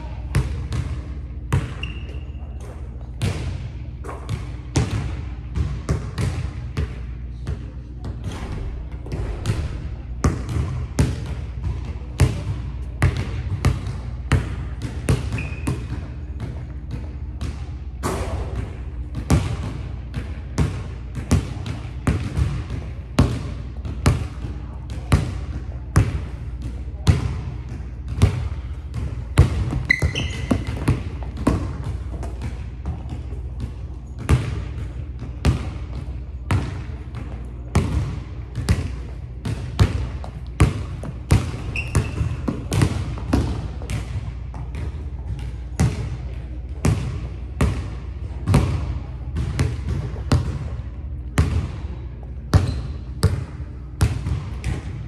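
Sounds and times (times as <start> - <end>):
sneakers squeaking on court: 0.2 - 6.7, 10.2 - 17.6, 27.5 - 46.2, 46.9 - 55.0
basketball bouncing on hardwood floor: 27.1 - 46.1, 48.5 - 50.7.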